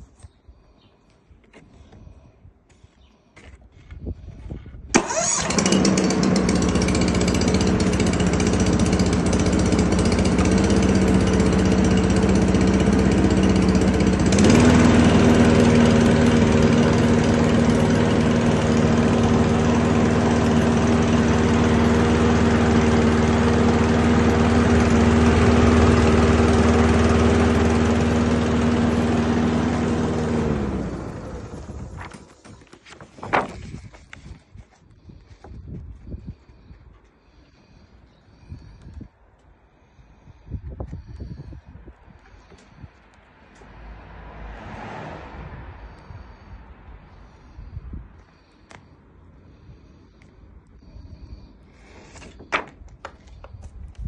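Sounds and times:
electric starter: 4.9s - 32.9s
lawn mower engine running: 4.9s - 34.7s.

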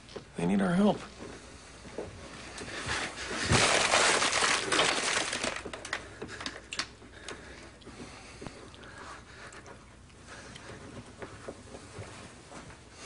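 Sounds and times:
crash of something breaking: 3.4s - 5.8s.

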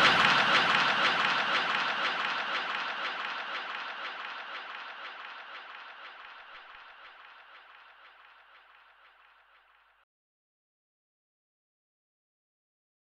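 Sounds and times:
audience laughing and applauding: 0.0s - 5.9s.

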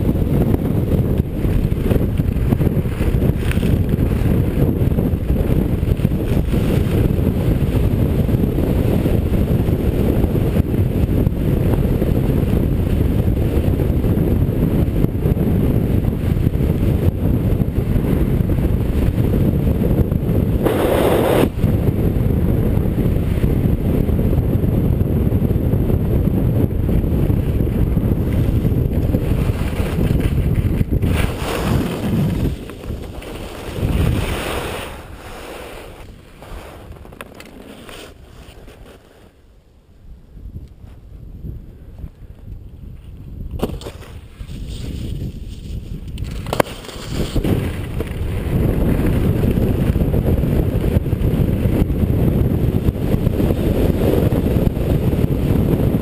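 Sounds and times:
wind buffeting microphone: 0.0s - 56.0s
skis rushing over snow: 0.1s - 14.0s, 20.4s - 21.8s, 27.3s - 39.6s, 43.6s - 51.2s, 52.6s - 56.0s.

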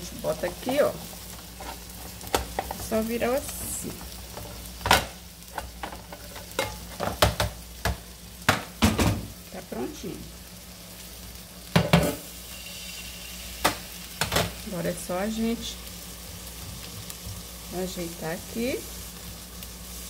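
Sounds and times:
frying sizzle: 0.0s - 20.0s
metal frying pans clattering: 4.3s - 9.3s, 11.7s - 12.3s, 13.6s - 14.6s.

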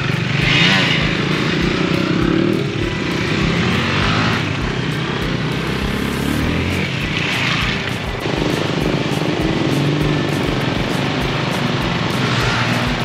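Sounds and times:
motorcycle engines running: 0.0s - 13.0s.

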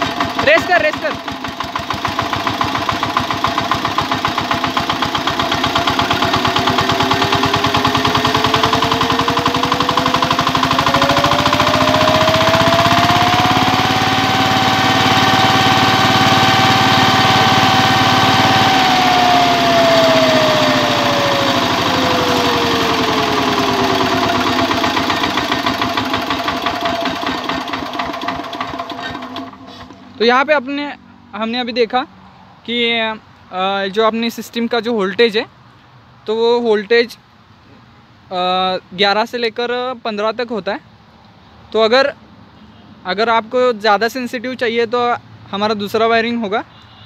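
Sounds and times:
diesel engine revving and chugging: 0.0s - 32.0s.

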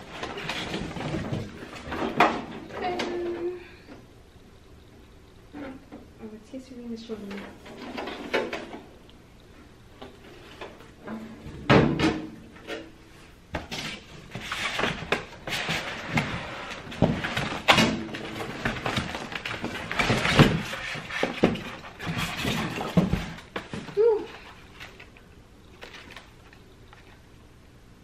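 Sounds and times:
cardboard packaging rustling: 13.8s - 27.3s.

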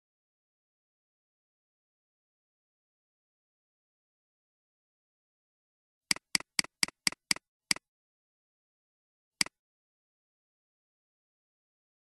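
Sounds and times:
computer mouse clicking: 6.1s - 7.8s.

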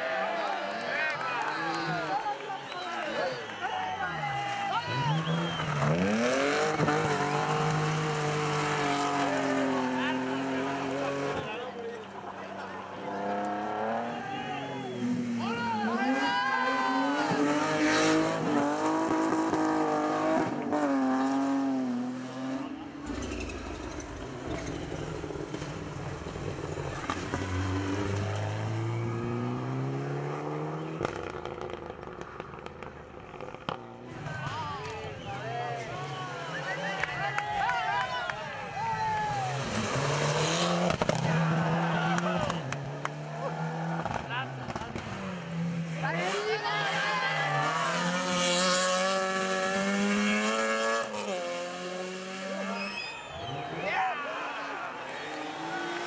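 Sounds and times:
rally car engine at high revs: 4.9s - 11.6s, 12.9s - 14.2s, 14.8s - 34.1s, 39.4s - 53.5s, 55.2s - 56.0s
car engine accelerating past: 16.8s - 32.5s.

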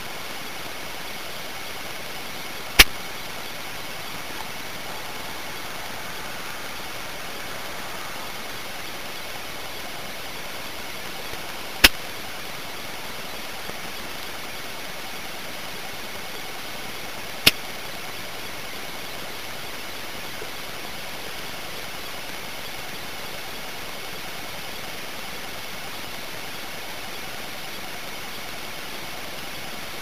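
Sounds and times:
faint high whine: 0.0s - 30.0s
microphone hiss: 0.0s - 30.0s
sharp click: 2.8s - 3.0s, 11.3s - 12.0s, 17.4s - 17.7s.

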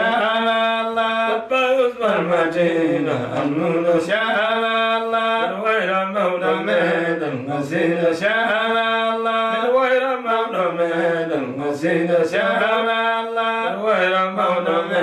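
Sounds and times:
man chanting unaccompanied: 0.0s - 15.0s.

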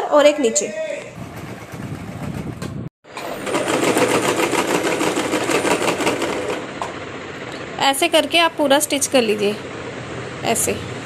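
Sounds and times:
sewing machine stitching: 3.1s - 6.7s.

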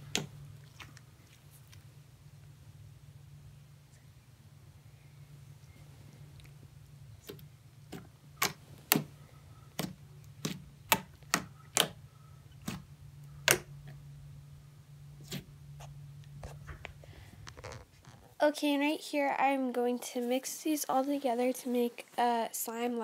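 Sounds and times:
steady low hum: 0.0s - 23.0s
slime popping clicks: 13.4s - 13.7s.

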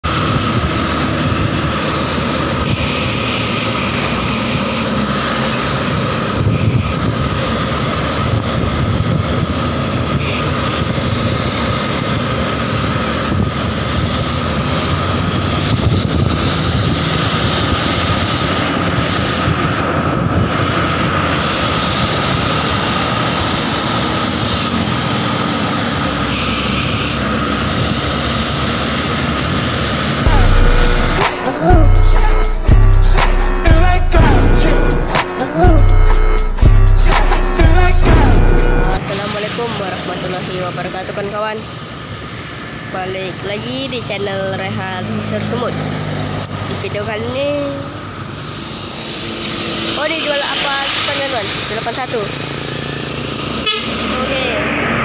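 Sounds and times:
bus engine and road noise: 0.0s - 55.0s
thin steady whine: 30.3s - 39.0s.

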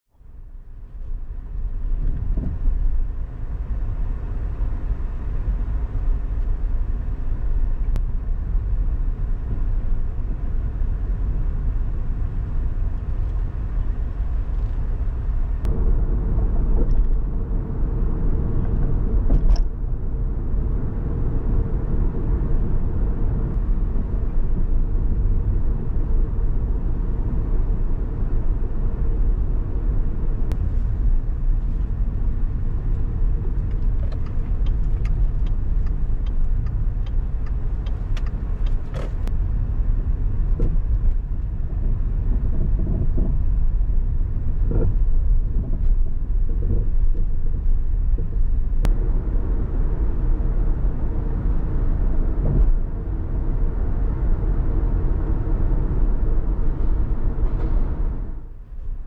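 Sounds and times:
car road and engine rumble: 0.1s - 59.0s
steady hum: 14.9s - 37.9s, 42.3s - 59.0s.

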